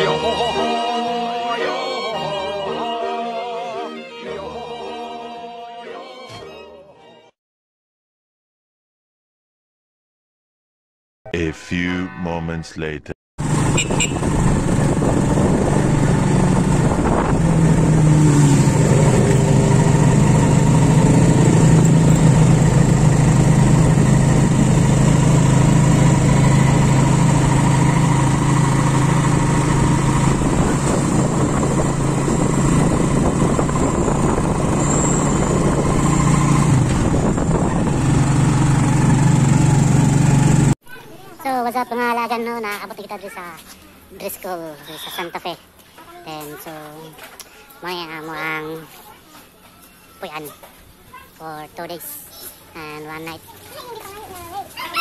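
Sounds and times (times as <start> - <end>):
road noise: 11.4 - 40.8
vehicle engine running: 13.4 - 40.8
wind noise: 13.8 - 18.1, 30.1 - 38.2.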